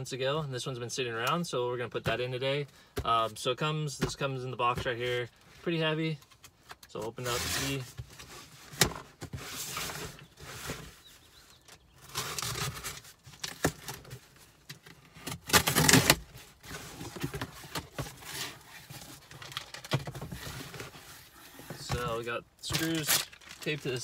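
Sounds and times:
cardboard rustling: 0:07.2 - 0:24.0
packing tape ripping: 0:15.3 - 0:16.2, 0:22.7 - 0:23.8.

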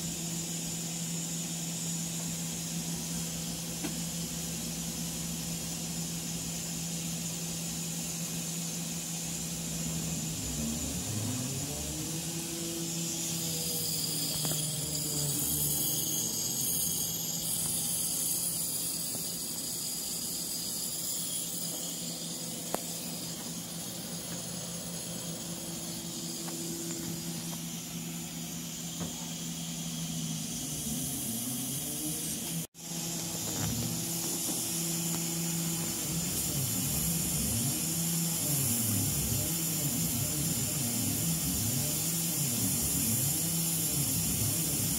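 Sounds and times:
air assist hiss: 0:00.0 - 0:44.9
low machine hum: 0:00.0 - 0:44.9.

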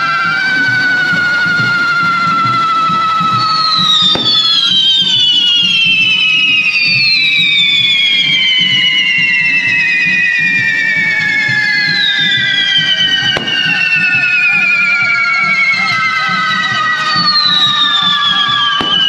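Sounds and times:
whistling fireworks falling in pitch: 0:00.0 - 0:19.0
sharp firework crack: 0:04.1 - 0:04.8, 0:13.3 - 0:14.1, 0:18.8 - 0:19.0.

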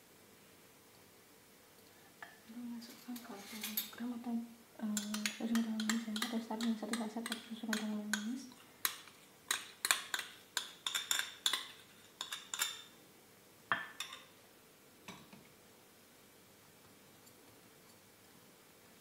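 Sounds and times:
metal spoon clinking on glass bowl: 0:05.0 - 0:12.9, 0:13.7 - 0:14.3.

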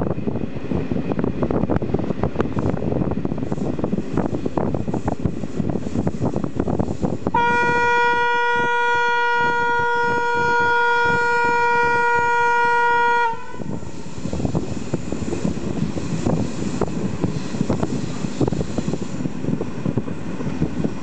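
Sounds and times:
moving train rumble: 0:00.0 - 0:21.0
train horn long note: 0:07.3 - 0:14.0.

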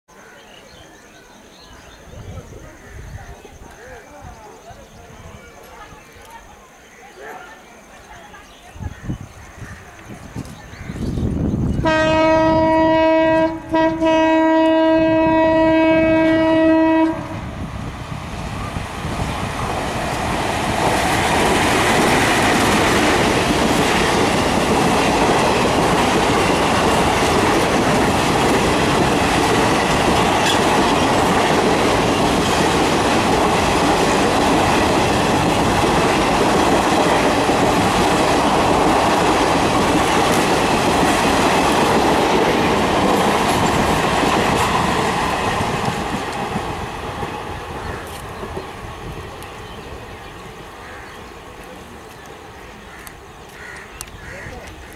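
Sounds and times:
train rumble and wheel clatter: 0:08.3 - 0:54.9
locomotive horn blast: 0:11.8 - 0:17.4.

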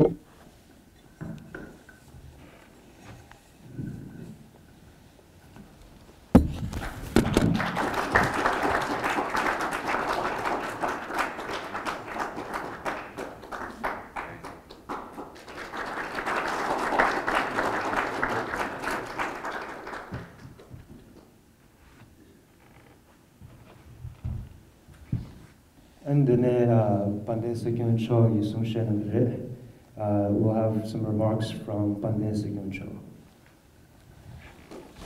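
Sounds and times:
thump: 0:06.4 - 0:07.5
audience applauding: 0:06.8 - 0:21.2.

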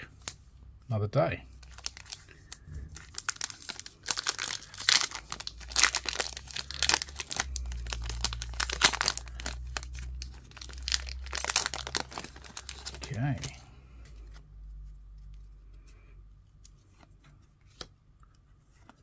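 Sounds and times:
foil wrapper tearing and crinkling: 0:01.6 - 0:13.5.

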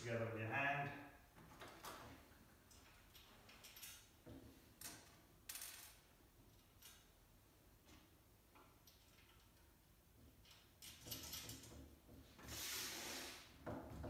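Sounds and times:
small metal parts clinking: 0:02.7 - 0:04.2, 0:04.8 - 0:07.1
short scrape on tabletop: 0:12.5 - 0:13.5.

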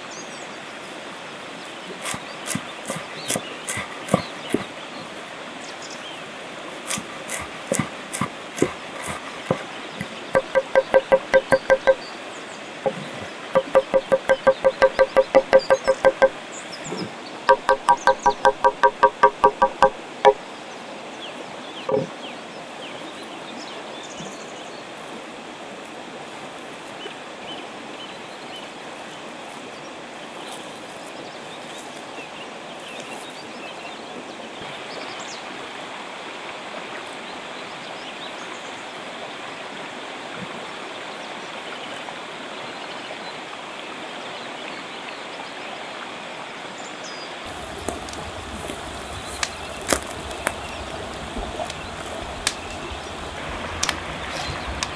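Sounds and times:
river water flowing: 0:00.0 - 0:54.9
knock: 0:10.4 - 0:12.0, 0:13.6 - 0:16.4, 0:17.5 - 0:20.0
wood fire crackling: 0:47.5 - 0:54.9.

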